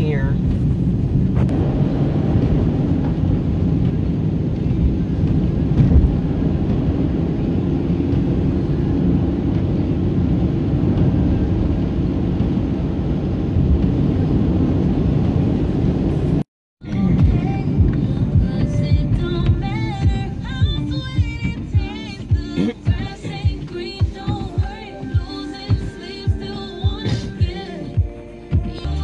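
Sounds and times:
car tyre and engine rumble: 0.0s - 29.0s
car bump: 0.4s - 7.0s.

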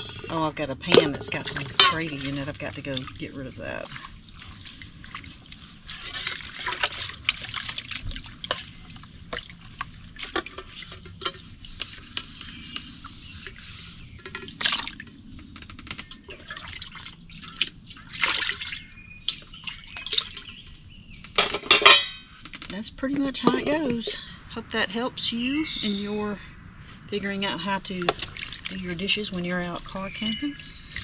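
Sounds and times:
water sloshing in a plastic tub: 0.0s - 24.2s, 27.0s - 31.0s
skillet scrubbed with a dishcloth: 1.0s - 7.5s, 8.4s - 14.1s.

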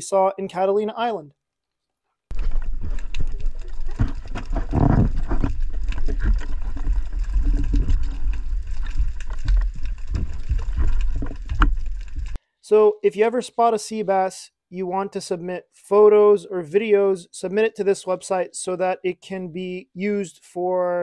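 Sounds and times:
underwater rumble of water: 2.3s - 12.4s.

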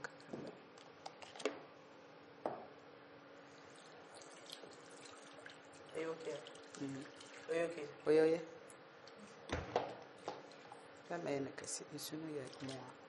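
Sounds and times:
liquid trickling into bowl: 3.6s - 8.2s, 12.4s - 13.0s.

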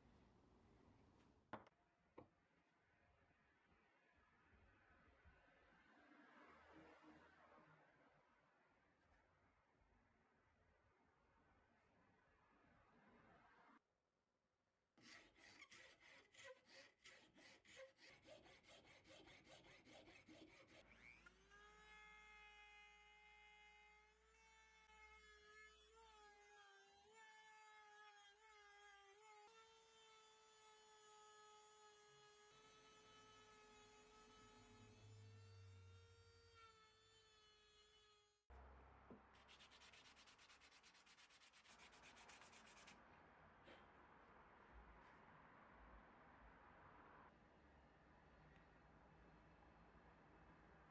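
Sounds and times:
hand file rasping on wood: 15.0s - 21.2s.

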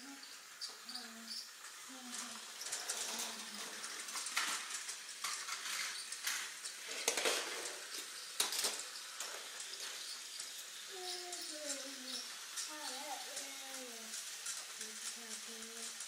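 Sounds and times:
toy train motor whir: 0.0s - 16.0s
clicks and clatters on plastic track: 0.2s - 16.0s.

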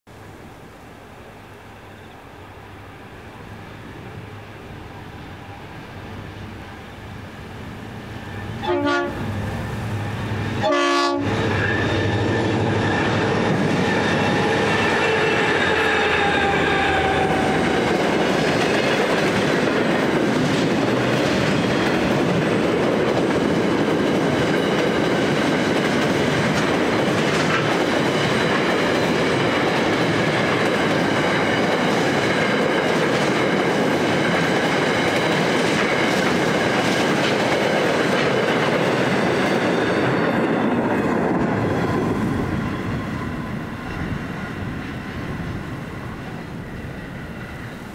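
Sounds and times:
diesel locomotive engines: 0.1s - 47.9s
wheel-on-rail noise: 1.2s - 47.9s
clickety-clack over rail joints: 10.2s - 45.4s.

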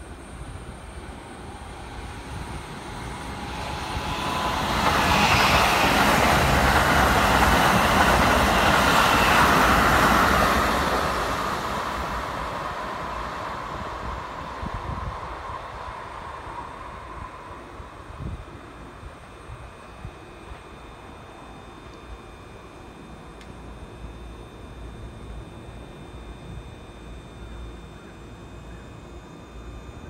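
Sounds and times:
electric train passing: 0.0s - 30.0s.

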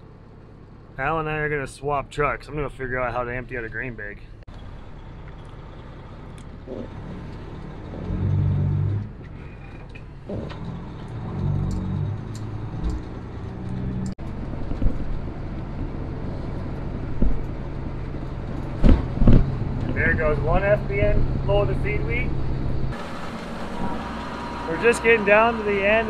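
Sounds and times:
truck diesel engine accelerating: 0.0s - 26.0s.

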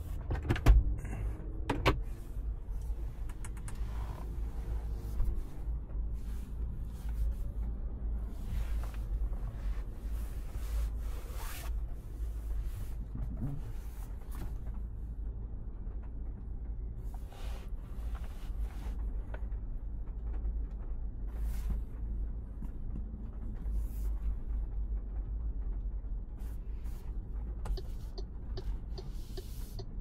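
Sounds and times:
low road rumble: 0.0s - 30.0s.

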